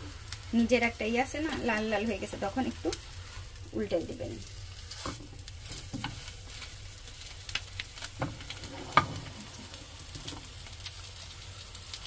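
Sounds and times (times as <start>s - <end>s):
egg sizzling in frying pan: 0.0s - 12.0s
spatula clicking and scraping pan: 4.4s - 10.6s.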